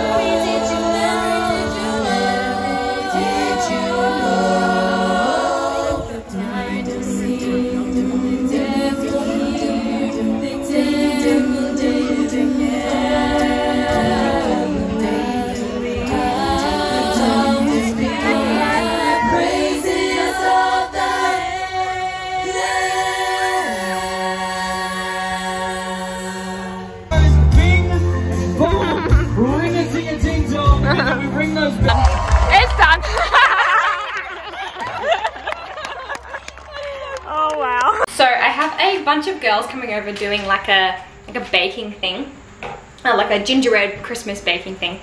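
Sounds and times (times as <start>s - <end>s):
women's vocal group singing: 0.0s - 27.1s.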